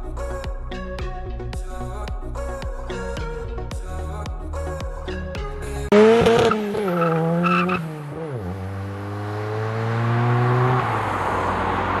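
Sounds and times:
car engine accelerating: 5.9s - 12.0s.

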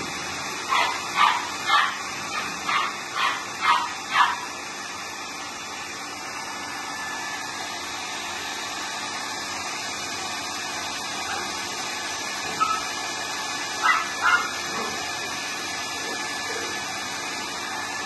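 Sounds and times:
hair dryer blowing: 0.0s - 18.0s
puppy yip: 0.7s - 4.4s, 12.5s - 12.9s, 13.8s - 15.0s.

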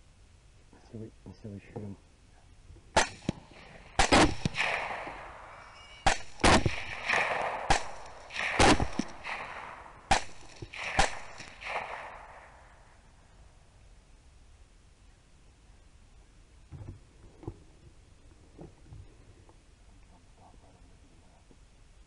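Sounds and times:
rifle shots with rolling echo: 2.9s - 13.2s.

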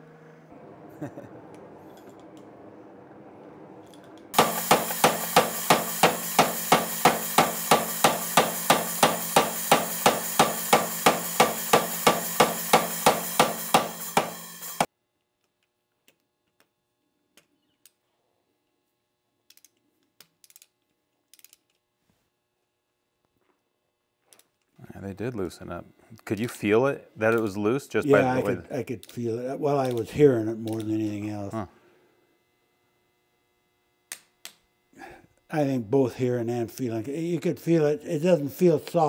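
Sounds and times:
steady hum: 0.0s - 14.9s, 24.8s - 33.4s
power hammer pounding metal: 4.3s - 14.9s.

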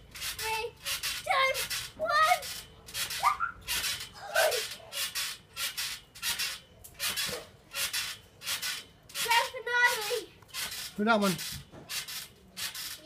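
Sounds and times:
trampoline springs and mat rasping: 0.0s - 13.0s.

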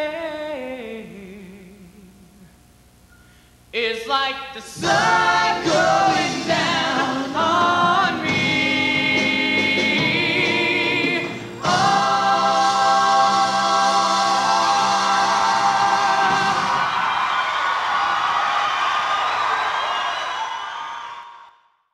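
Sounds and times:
male soloists singing: 4.7s - 16.9s
choir singing: 4.7s - 17.1s.

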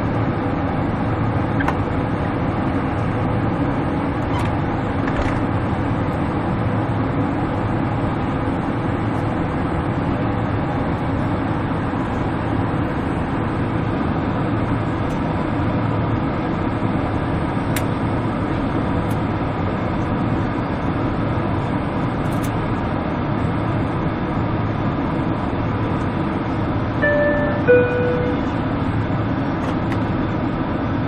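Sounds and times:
airliner cabin drone: 0.0s - 31.0s
faint steady hum: 27.0s - 29.0s.

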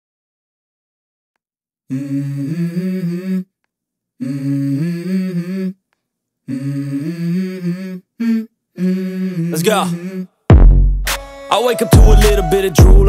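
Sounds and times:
hummed melody: 11.1s - 13.0s.

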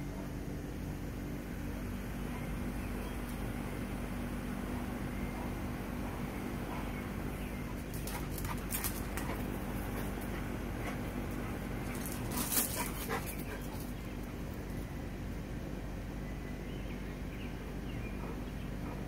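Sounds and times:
steady low hum: 0.0s - 19.0s
dogs barking: 2.2s - 3.2s, 4.6s - 14.5s, 18.0s - 19.0s
dogs playing: 4.6s - 15.2s.

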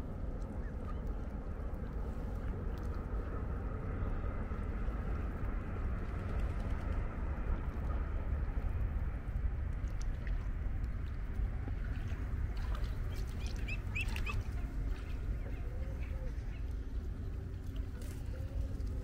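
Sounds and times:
steady low rumble: 0.0s - 19.0s
waterfowl calling: 12.7s - 16.7s.

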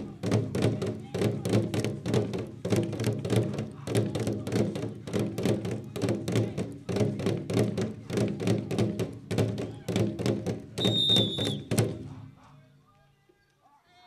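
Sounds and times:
drums beaten with sticks: 0.0s - 12.4s
shrill whistle: 10.8s - 11.7s.

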